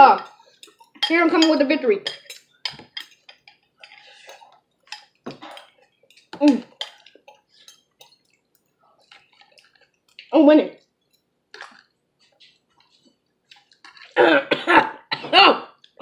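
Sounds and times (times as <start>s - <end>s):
spoon scraping containers: 0.0s - 10.3s, 11.0s - 14.2s
wet licking mouth noises: 11.5s - 14.2s.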